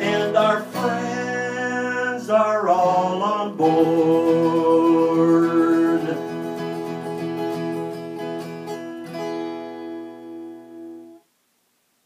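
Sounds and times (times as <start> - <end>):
acoustic guitar strumming: 0.0 - 11.3.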